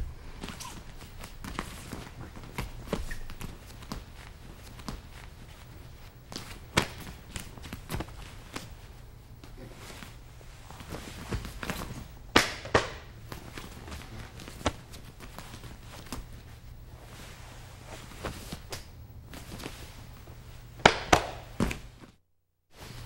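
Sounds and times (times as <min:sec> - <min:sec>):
shuffling on mat: 0:00.0 - 0:12.2, 0:13.2 - 0:20.7, 0:21.6 - 0:23.0
steady low hum: 0:00.0 - 0:23.0
bodies thudding on training mat: 0:06.3 - 0:08.7.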